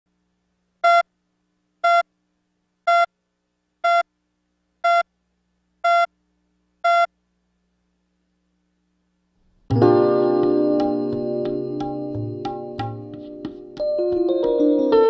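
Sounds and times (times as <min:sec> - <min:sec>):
short electronic countdown beeps: 0:00.8 - 0:01.0, 0:01.8 - 0:02.0, 0:02.9 - 0:03.1, 0:03.8 - 0:04.0, 0:04.8 - 0:05.1, 0:05.8 - 0:06.1, 0:06.8 - 0:07.1.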